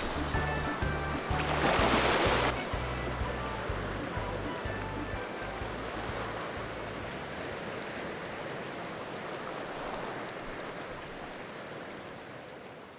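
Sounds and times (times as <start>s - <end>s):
waves washing on rocky shore: 5.6s - 12.9s.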